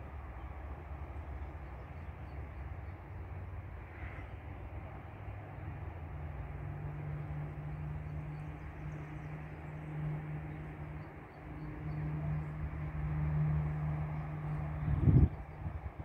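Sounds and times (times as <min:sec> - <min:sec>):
outdoor background noise: 0:00.0 - 0:16.0
engine humming: 0:06.0 - 0:16.0.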